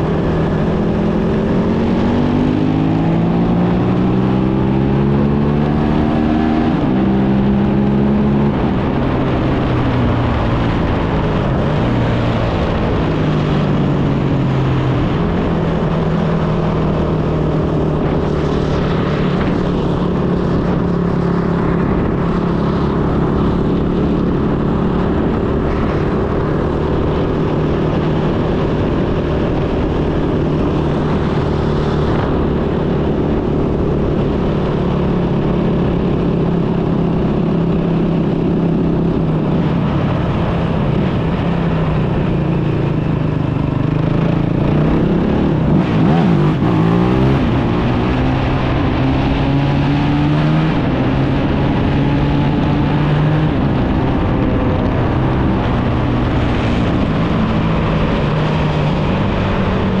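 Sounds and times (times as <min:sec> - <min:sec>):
quad bike engine running: 0:14.8 - 1:00.0.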